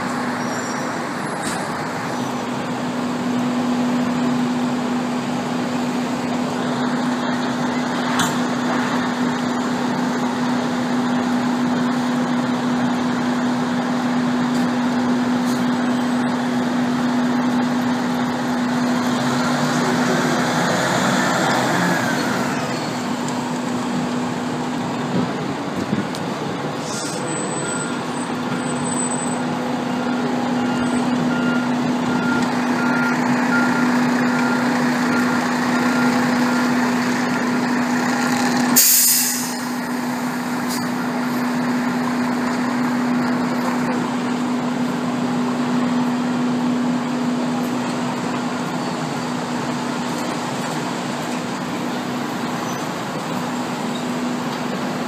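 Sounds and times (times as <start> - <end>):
diesel engine running: 0.0 - 55.0
air brakes hissing: 26.8 - 27.8, 38.8 - 39.9
reversing alarm beeping: 27.3 - 37.6.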